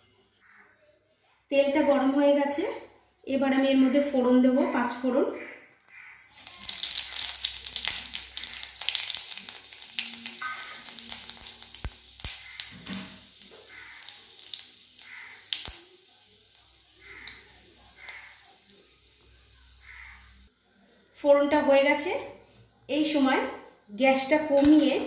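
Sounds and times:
seeds sizzling in hot oil: 6.2s - 20.5s, 24.6s - 25.0s.

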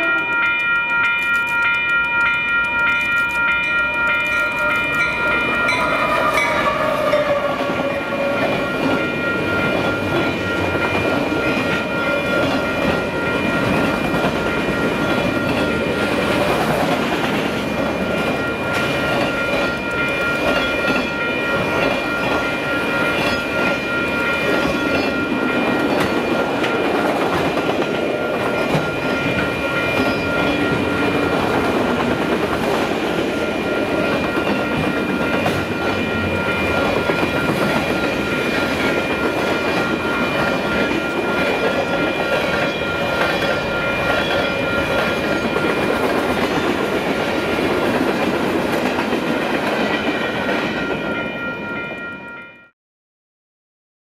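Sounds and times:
thin high tone: 0.0s - 16.4s, 18.0s - 32.1s
diesel locomotive passing: 1.6s - 52.3s
train rumble: 4.6s - 51.4s.

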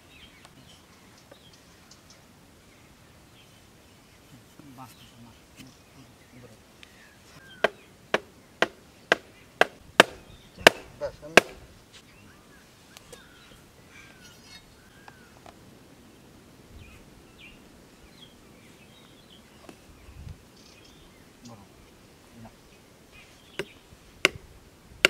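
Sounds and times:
birds chirping: 0.0s - 25.0s
hand tool chopping blows: 7.6s - 11.6s.

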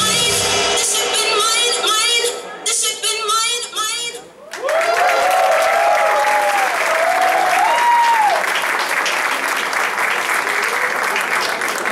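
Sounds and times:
audience applauding and cheering: 4.4s - 11.9s.

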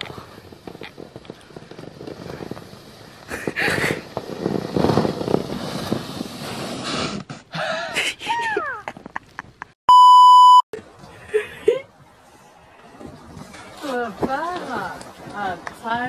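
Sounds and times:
person sliding over snow: 0.0s - 7.7s.

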